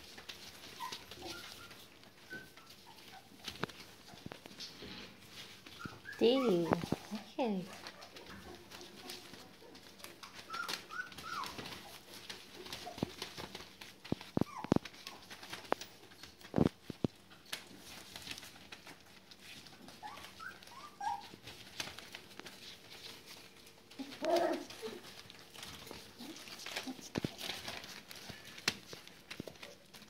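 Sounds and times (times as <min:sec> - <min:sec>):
newspaper rustling: 0:00.0 - 0:30.0
puppy yelp: 0:00.4 - 0:04.2, 0:05.7 - 0:15.9, 0:19.7 - 0:22.2, 0:23.0 - 0:28.5
puppies squeaking and whimpering: 0:00.4 - 0:16.4, 0:18.9 - 0:28.7.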